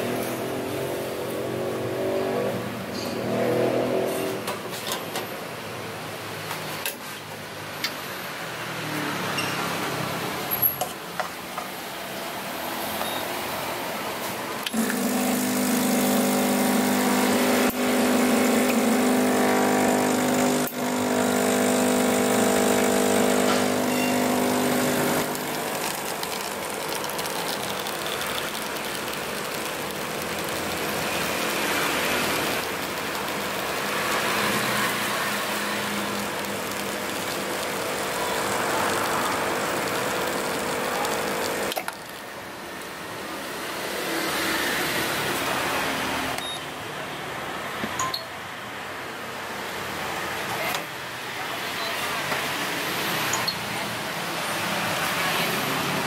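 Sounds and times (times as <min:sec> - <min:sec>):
espresso streaming into cup: 0:14.7 - 0:42.4
espresso machine pump humming: 0:14.7 - 0:46.4.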